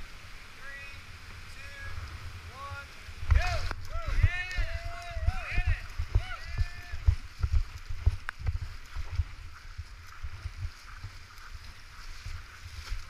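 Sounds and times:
whitewater rushing: 0.0s - 10.2s
paddle blades splashing: 0.0s - 13.0s
wind buffeting microphone thuds: 1.2s - 13.0s.

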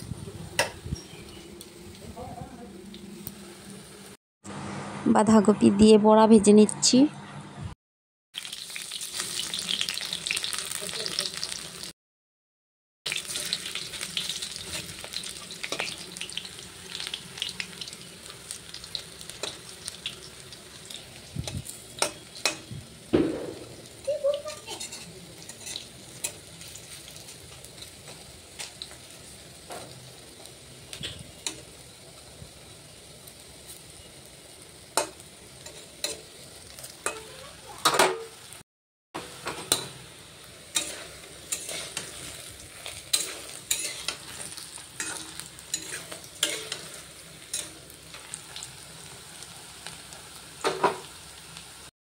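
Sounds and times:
fritters sizzling in hot oil: 8.4s - 12.0s, 13.1s - 38.6s, 39.2s - 51.9s
metal spatula scraping pan: 24.6s - 26.4s, 40.7s - 47.8s.

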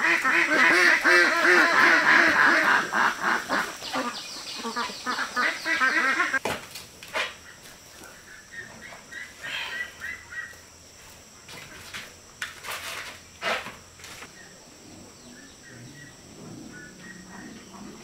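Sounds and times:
farm animal calls: 0.0s - 6.4s, 7.2s - 10.9s, 14.2s - 18.0s
high chirping calls: 3.5s - 6.4s.

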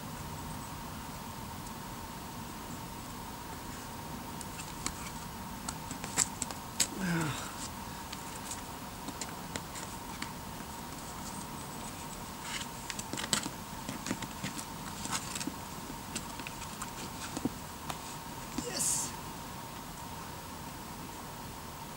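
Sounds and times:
faint steady tone: 0.0s - 13.0s
shoes scraping on rock: 4.5s - 18.9s.

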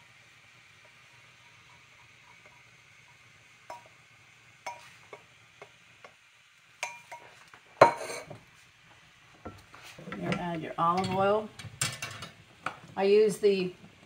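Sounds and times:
kitchenware clinking and tapping: 3.7s - 4.0s, 4.6s - 6.2s, 6.8s - 8.4s, 9.4s - 12.8s
kitchenware clatter: 4.7s - 5.2s, 6.8s - 8.4s, 9.5s - 12.8s.

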